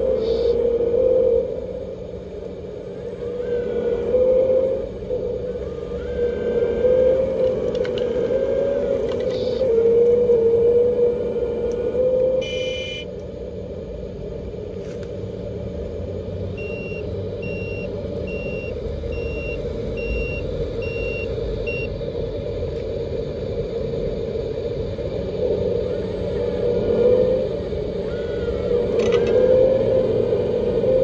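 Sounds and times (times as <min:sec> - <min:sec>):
simulated diesel engine sound: 0:00.0 - 0:31.0
reversing beeper: 0:05.5 - 0:09.7, 0:11.7 - 0:13.1, 0:16.5 - 0:22.0
short electronic tone: 0:12.4 - 0:13.1.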